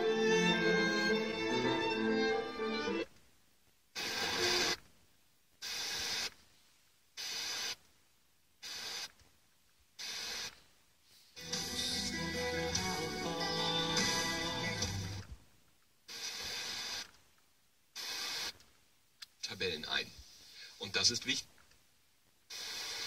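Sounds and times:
violin music on radio: 0.0 - 3.2, 4.0 - 4.8, 11.2 - 15.4
radio hiss bursts: 3.9 - 4.9, 5.6 - 6.4, 7.2 - 7.9, 8.6 - 9.2, 10.0 - 12.2, 16.1 - 17.2, 17.9 - 18.7, 22.5 - 23.0.

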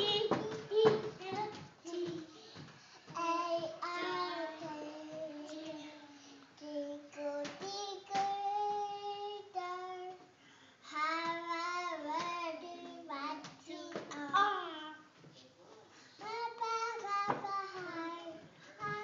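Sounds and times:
toddler singing: 0.0 - 10.3, 10.9 - 15.1, 16.2 - 19.0.

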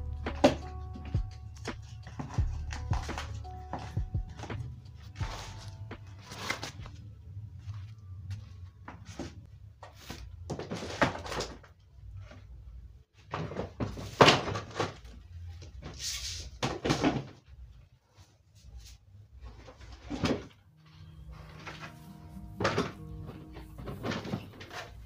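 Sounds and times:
rustling of handled items: 0.0 - 25.0.

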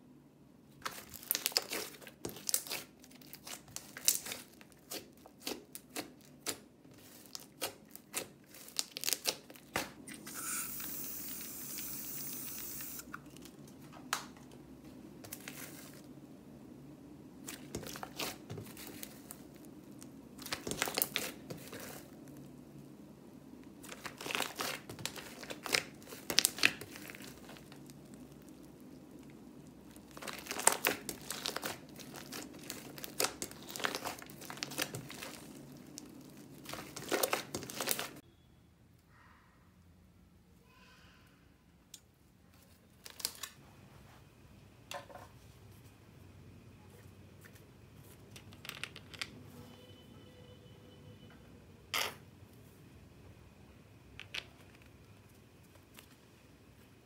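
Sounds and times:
slime crackling and popping: 0.8 - 10.0, 17.5 - 22.4, 23.8 - 38.2.

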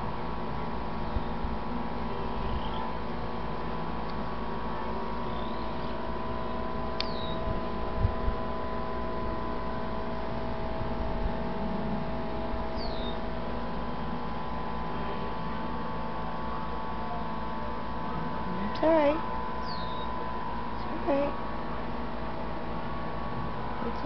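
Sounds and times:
steady hum with held tones: 0.0 - 24.0
high falling chirps: 7.0 - 7.5.

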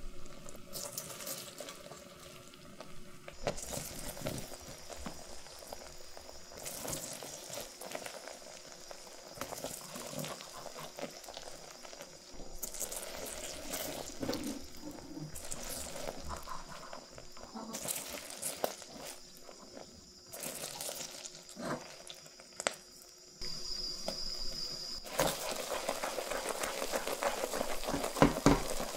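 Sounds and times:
sugar syrup boiling and crackling: 0.0 - 28.9.

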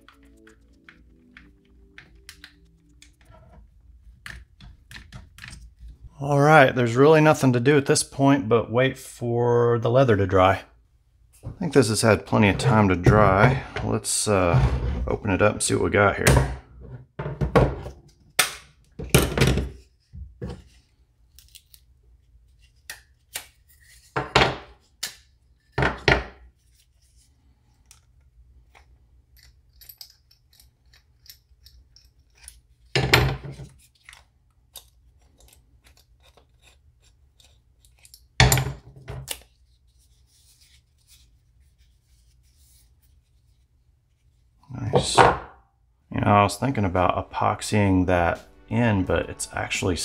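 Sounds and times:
clicks and handling noise: 0.0 - 6.1.

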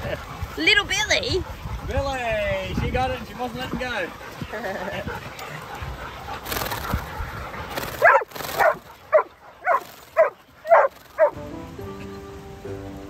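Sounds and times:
dog barking: 5.7 - 11.3
background music: 11.2 - 13.0.

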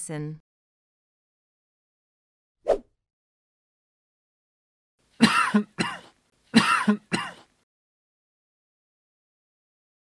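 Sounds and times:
person coughing: 5.2 - 7.5.

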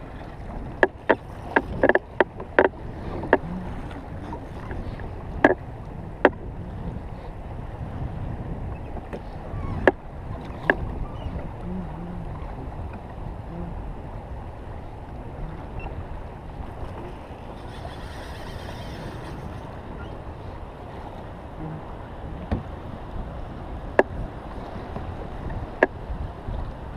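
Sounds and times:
water slapping against hull: 0.0 - 17.6, 20.8 - 26.9
wind on microphone: 0.0 - 26.9.

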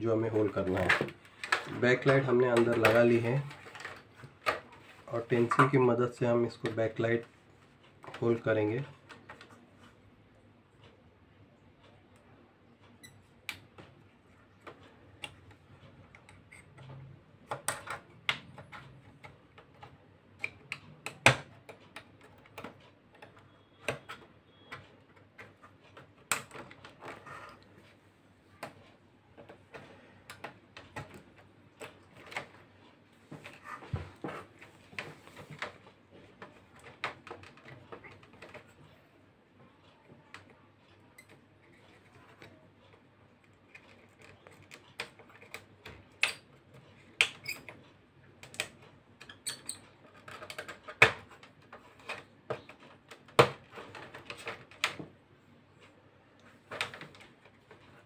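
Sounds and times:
small scratches and sharp ticks: 39.7 - 54.9.

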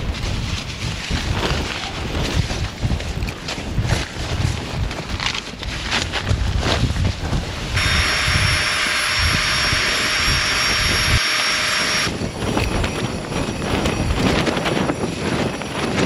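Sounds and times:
gusty wind buffeting tent: 0.0 - 11.2, 11.8 - 16.0
electric air pump whining: 7.7 - 13.0.

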